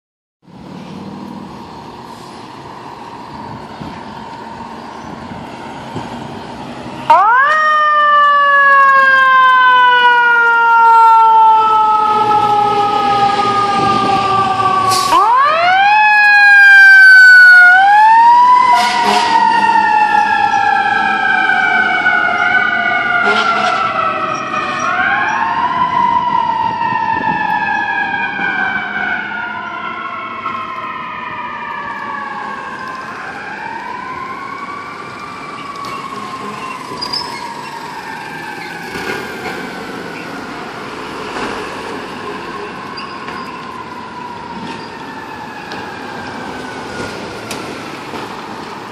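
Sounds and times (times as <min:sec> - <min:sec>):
fire truck mechanical siren: 0:01.5 - 0:48.9.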